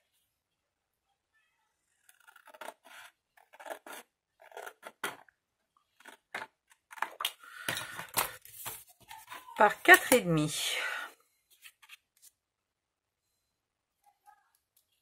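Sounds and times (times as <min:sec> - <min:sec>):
scissors snipping paper: 0:02.0 - 0:05.2.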